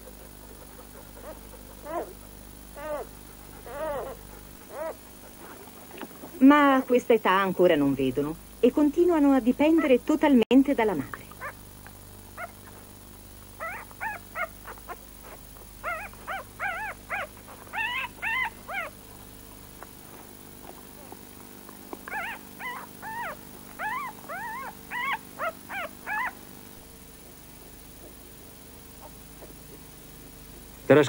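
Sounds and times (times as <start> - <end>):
puppies whimpering and squeaking: 1.2 - 2.2, 2.8 - 5.6, 13.6 - 18.9, 22.1 - 26.4.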